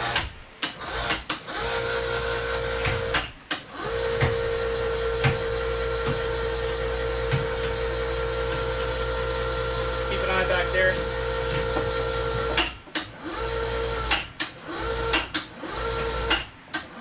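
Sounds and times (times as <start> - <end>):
electric chain hoist motor whining: 0.0 - 17.0.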